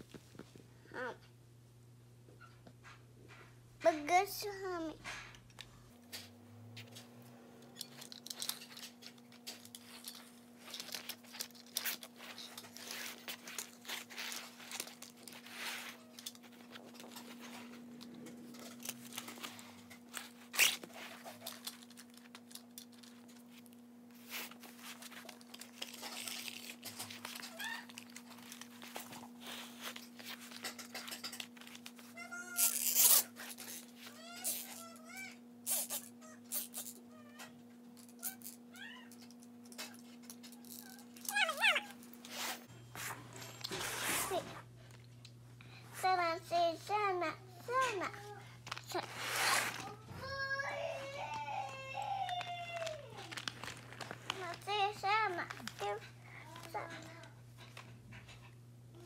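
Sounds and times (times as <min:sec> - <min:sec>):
steady low hum: 0:00.0 - 0:59.0
paper rustling and crinkling: 0:08.3 - 0:32.1, 0:48.7 - 0:57.3.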